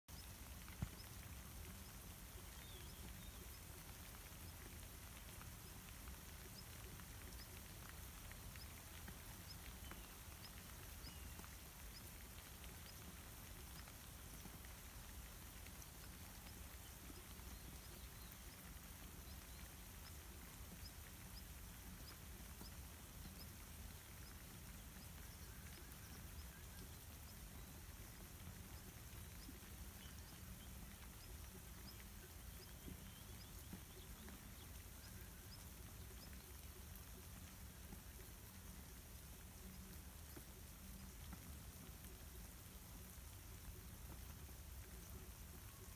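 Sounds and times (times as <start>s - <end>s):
light rain falling: 0.1s - 45.9s.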